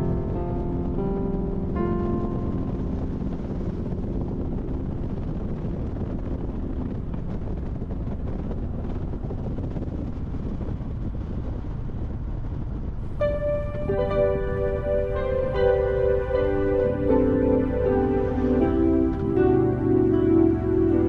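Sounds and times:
faint background music: 0.0s - 10.3s, 13.0s - 21.0s
motorcycle engine rumble: 0.0s - 21.0s
wind buffeting microphone: 0.0s - 21.0s
road noise: 5.0s - 21.0s.

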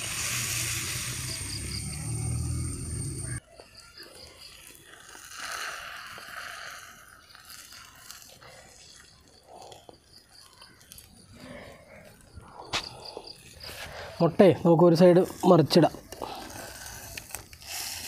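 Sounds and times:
egg sizzling in a pan: 0.0s - 3.0s, 3.9s - 9.4s.

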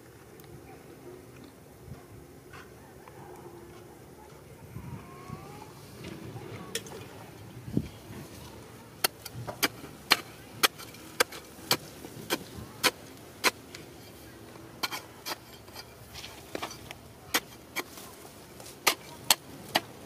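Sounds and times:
digging bar striking stony soil: 9.0s - 20.0s.

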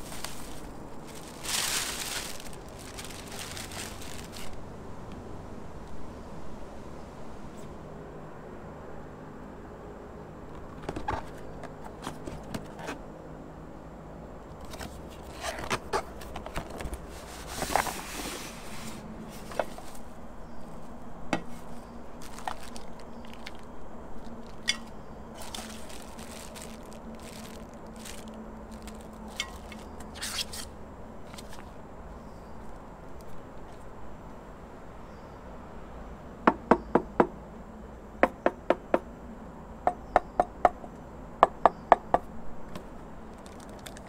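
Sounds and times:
bubble wrap and plastic crinkling: 0.0s - 4.7s, 14.6s - 20.2s, 21.4s - 30.7s, 31.3s - 31.7s, 43.3s - 44.0s.

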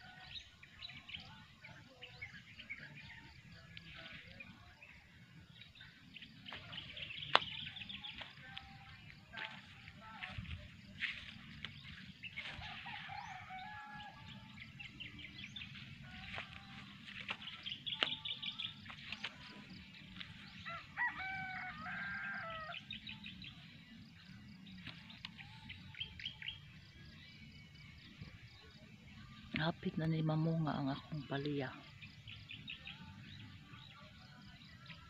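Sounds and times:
small birds chirping: 0.0s - 35.0s
long pitched bird call: 20.7s - 23.0s.

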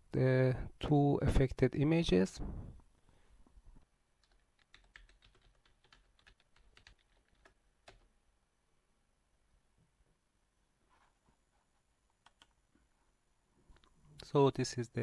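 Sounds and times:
computer keyboard clicking: 4.2s - 8.1s, 12.2s - 12.6s.

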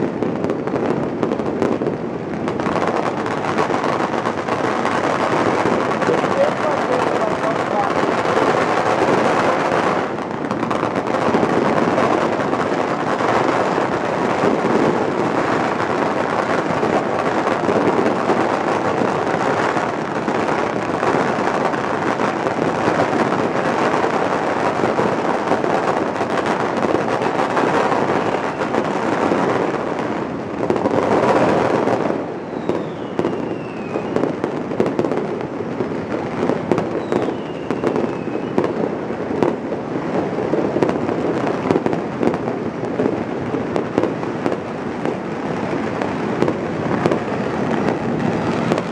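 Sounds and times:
firecrackers crackling: 0.0s - 48.9s
falling firework whistles: 27.4s - 28.9s, 30.8s - 35.1s, 36.6s - 39.5s.

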